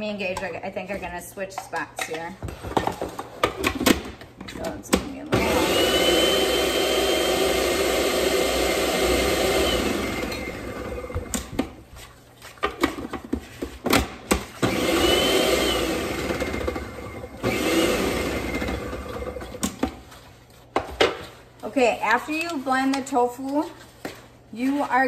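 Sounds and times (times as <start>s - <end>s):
food processor motor: 5.4s - 11.4s, 14.6s - 19.6s.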